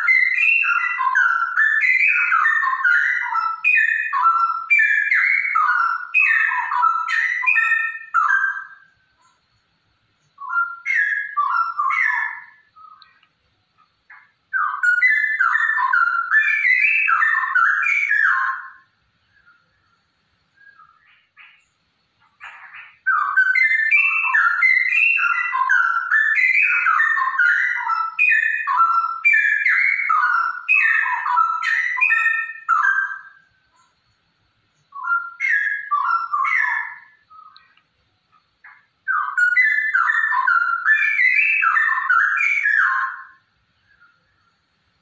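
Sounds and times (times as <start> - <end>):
bird singing whistled phrases: 0.0 - 9.4, 10.2 - 13.2, 14.1 - 21.7, 22.4 - 34.0, 34.7 - 37.8, 38.6 - 44.4.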